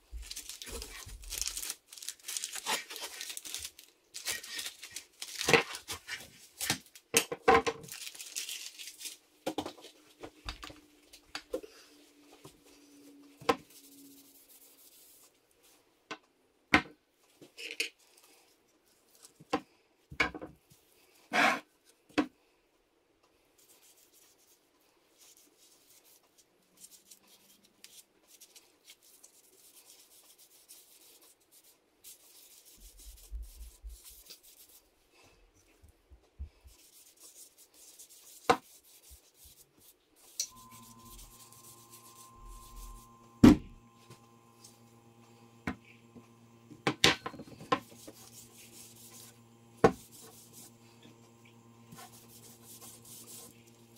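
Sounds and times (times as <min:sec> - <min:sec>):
gloved hands rubbing stick: 0:26.8 - 0:34.9, 0:36.7 - 0:46.6, 0:47.5 - 0:53.9.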